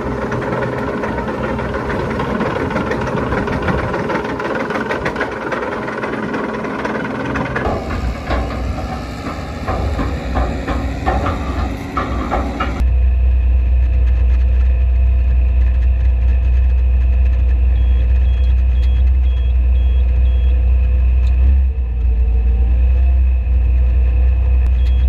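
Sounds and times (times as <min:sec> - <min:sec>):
harrow clattering clicks: 0:00.0 - 0:12.8
tractor engine running: 0:00.0 - 0:25.0
wheel loader engine rumble: 0:00.0 - 0:25.0.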